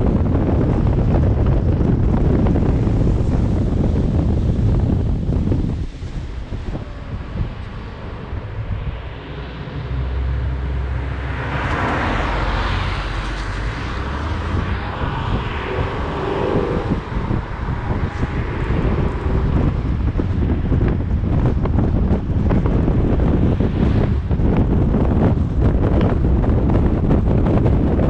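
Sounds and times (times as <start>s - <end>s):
road and tyre rumble: 0.0s - 28.0s
wind buffeting microphone: 0.0s - 28.0s
broad rushing swell: 2.4s - 22.0s.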